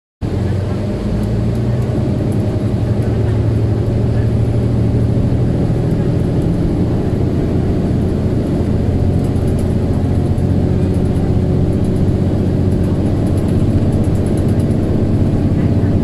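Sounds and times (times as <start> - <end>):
bus engine running: 0.2 - 16.0
loud radiator cooling fan: 0.2 - 16.0.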